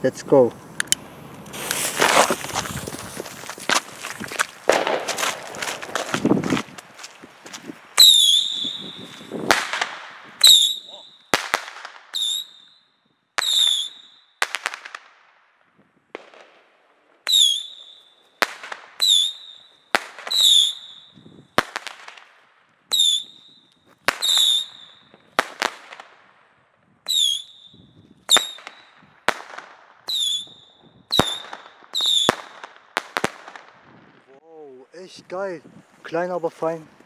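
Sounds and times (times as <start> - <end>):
firework bangs: 1.0 - 12.8, 13.4 - 15.4, 16.1 - 34.3
firework whistles: 8.0 - 15.0, 17.2 - 22.1, 22.9 - 26.0, 27.0 - 33.2.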